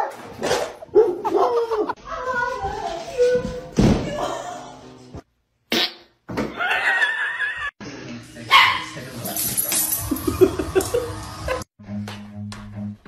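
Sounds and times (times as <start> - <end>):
people talking: 1.5 - 4.7
dogs barking and yipping: 8.5 - 9.0.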